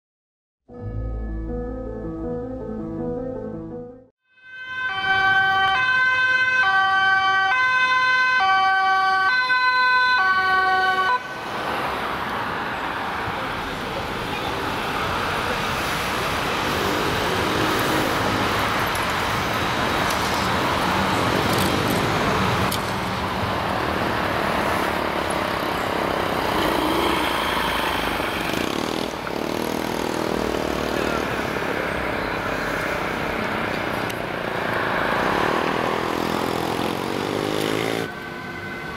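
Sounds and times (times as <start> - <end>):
two-tone emergency siren: 4.2 - 11.3, 37.9 - 38.9
street and traffic noise: 4.3 - 38.9.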